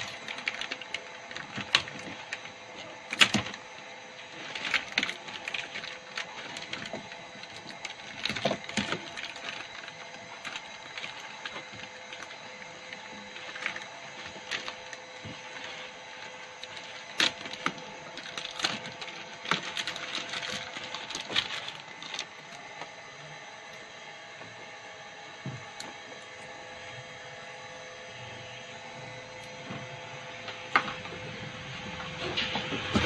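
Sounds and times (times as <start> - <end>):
plastic bag crinkling: 0.0 - 23.0
steady background hum: 0.0 - 33.0.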